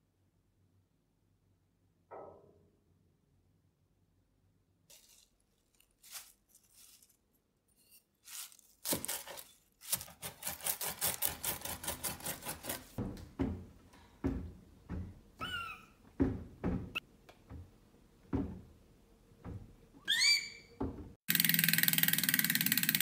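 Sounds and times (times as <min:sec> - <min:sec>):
herbs rustling: 0:04.9 - 0:11.3
blade chopping on wooden board: 0:09.9 - 0:13.0.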